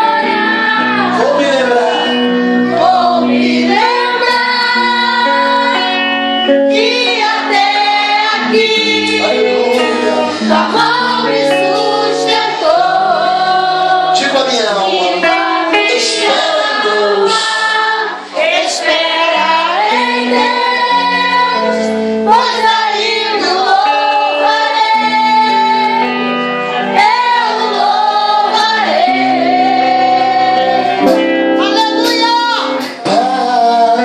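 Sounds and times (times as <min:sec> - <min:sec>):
held instrumental chords: 0:00.0 - 0:34.0
person singing: 0:00.0 - 0:34.0.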